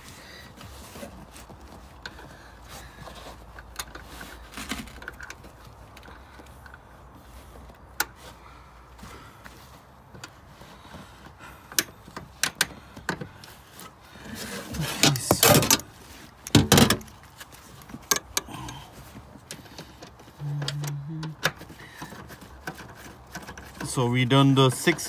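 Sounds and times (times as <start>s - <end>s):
scraping rustle: 0.0s - 25.0s
metal and plastic clicks and knocks: 11.7s - 13.5s, 15.0s - 18.5s, 19.2s - 24.0s.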